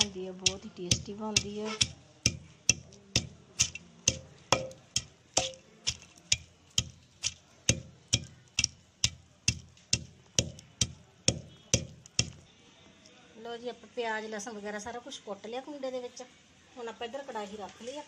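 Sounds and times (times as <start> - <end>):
wooden pestle pounding in mortar: 0.0 - 12.4.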